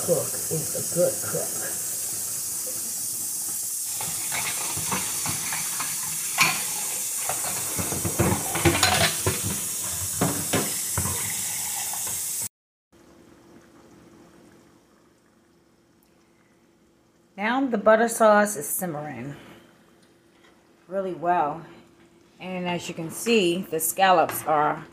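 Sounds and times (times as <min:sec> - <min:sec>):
tap running into metal sink: 0:04.0 - 0:11.4
dishes and utensils clinking: 0:04.0 - 0:12.2.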